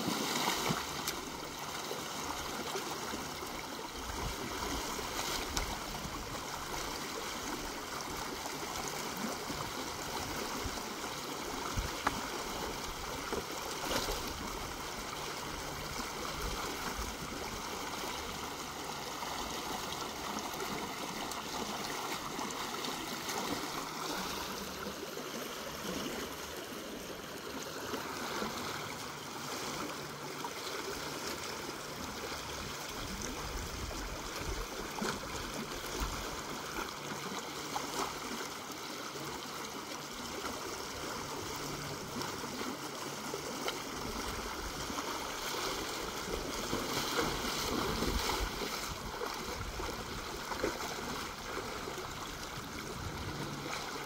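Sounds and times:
floodwater rushing: 0:00.0 - 0:54.0.

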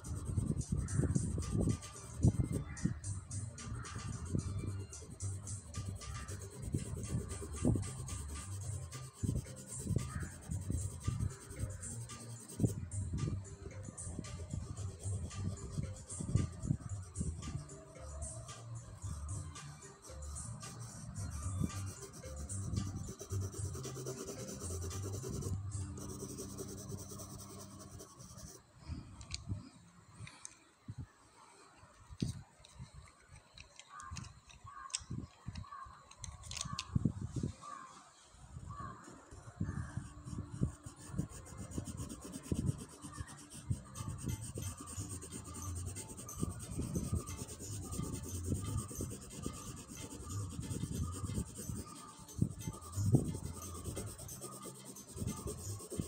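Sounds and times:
pencil scratching on paper: 0:00.0 - 0:02.8, 0:03.8 - 0:12.8, 0:14.0 - 0:16.6, 0:20.6 - 0:28.6, 0:40.2 - 0:56.0.

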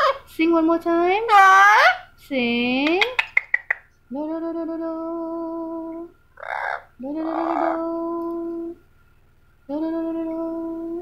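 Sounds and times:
parrot singing held notes: 0:05.9 - 0:08.8
parrot raspy squawk: 0:06.4 - 0:07.8.

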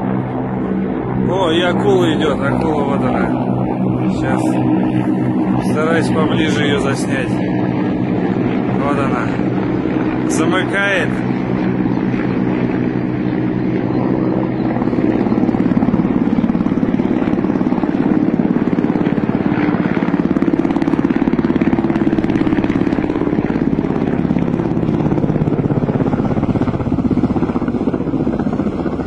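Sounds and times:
helicopter engine drone: 0:00.0 - 0:29.0
helicopter rotor chop: 0:00.0 - 0:29.0.

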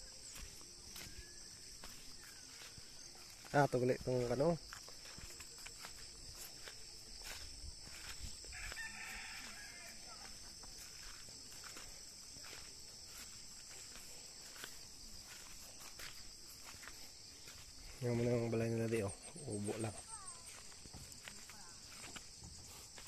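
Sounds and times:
footsteps through grass: 0:00.0 - 0:23.0
high insect chirring: 0:00.0 - 0:23.0
distant rooster crowing: 0:08.4 - 0:10.5.

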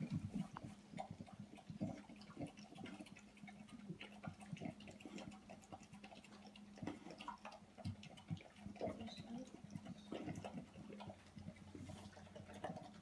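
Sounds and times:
dog eating wet food: 0:00.0 - 0:13.0
faint steady hum: 0:00.0 - 0:13.0.

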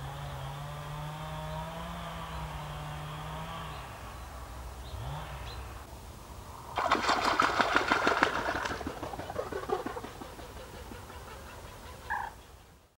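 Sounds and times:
bird wingbeats splashing water: 0:06.8 - 0:12.3
bird call: 0:09.0 - 0:12.7.

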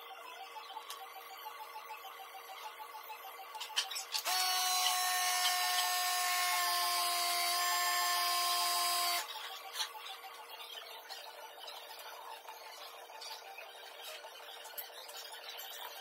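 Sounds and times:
small machine whining with hiss: 0:03.9 - 0:09.4.

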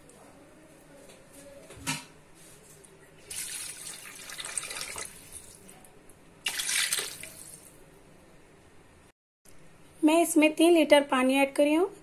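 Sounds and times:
water pouring into a pot: 0:03.2 - 0:05.6.

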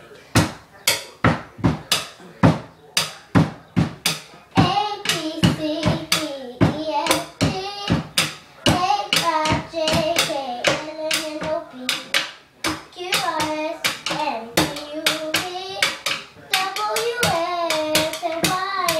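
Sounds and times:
drumsticks beating wooden cabinet: 0:00.3 - 0:18.9
girl singing: 0:04.5 - 0:18.9.

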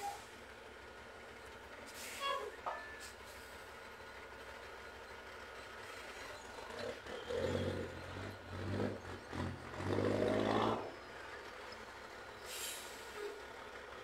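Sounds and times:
heavy diesel engine revving: 0:06.6 - 0:11.2.

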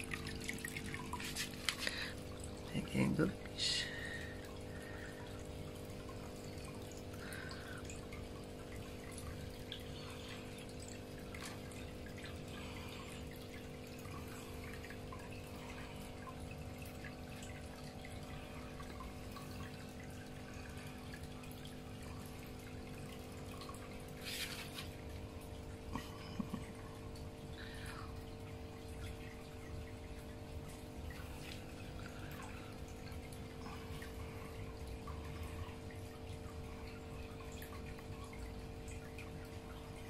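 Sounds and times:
electric pump hum: 0:00.0 - 0:40.0.

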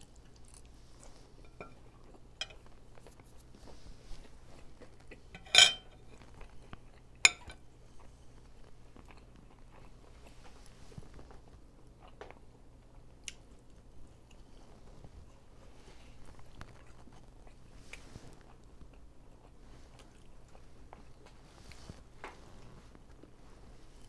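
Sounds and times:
quiet chewing: 0:00.0 - 0:24.0
fork clinking on a plate: 0:01.4 - 0:01.8, 0:02.4 - 0:02.7, 0:05.4 - 0:06.1, 0:07.3 - 0:07.6.

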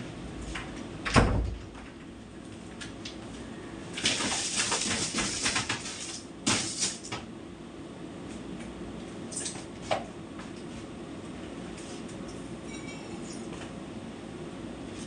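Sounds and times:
broom sweeping tiled floor: 0:11.8 - 0:12.1.

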